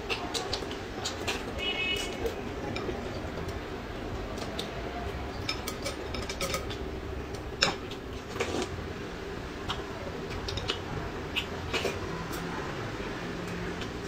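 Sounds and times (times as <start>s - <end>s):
chopsticks clinking on ceramic bowls: 5.3s - 6.8s.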